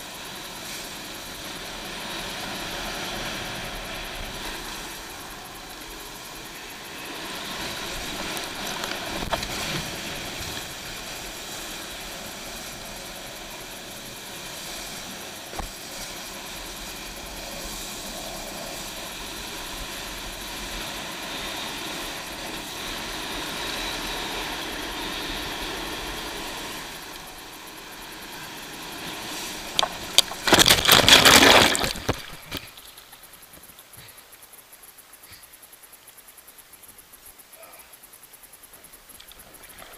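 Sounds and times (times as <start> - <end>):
water hissing under wakeboard: 0.0 - 33.4
loud crash of water: 29.8 - 32.8.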